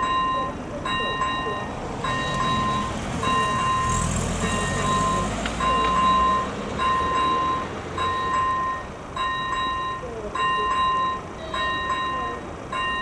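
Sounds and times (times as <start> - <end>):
level crossing warning bell: 0.0 - 13.0
car driving past: 1.7 - 8.2.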